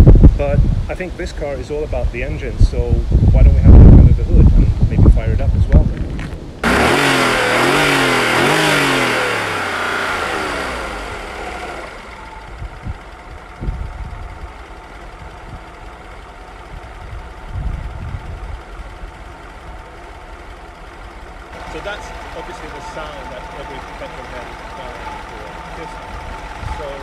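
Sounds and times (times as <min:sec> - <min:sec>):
car engine revving and idling: 0:06.1 - 0:27.0.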